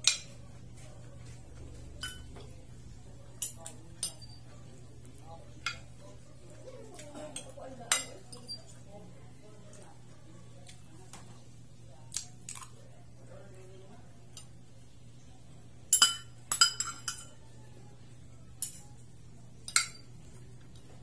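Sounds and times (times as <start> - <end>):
cutlery clinking on a plate: 0.0 - 2.6, 3.4 - 4.5, 7.0 - 8.7, 15.9 - 17.4, 18.6 - 19.0, 19.6 - 21.0.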